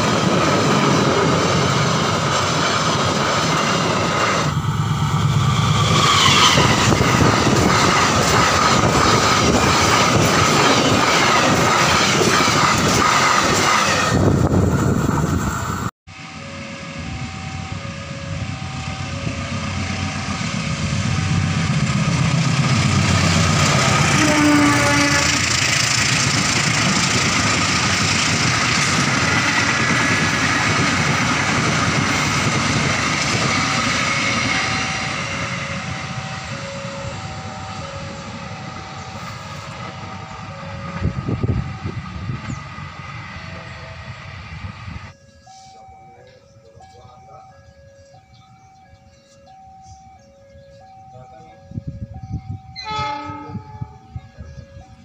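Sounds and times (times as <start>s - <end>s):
train coaches rumbling past: 0.0s - 55.0s
two-note electronic warning signal: 16.1s - 20.4s, 33.5s - 55.0s.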